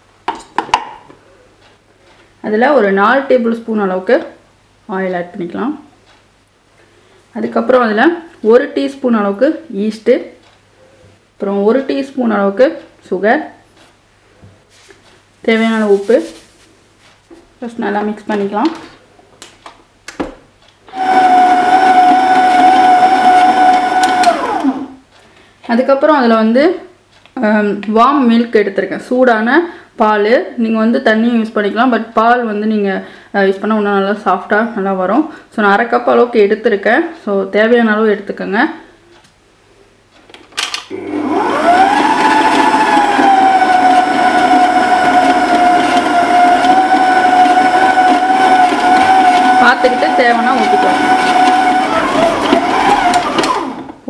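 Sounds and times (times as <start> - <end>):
stand mixer motor whining: 20.9 - 24.9, 40.9 - 53.9.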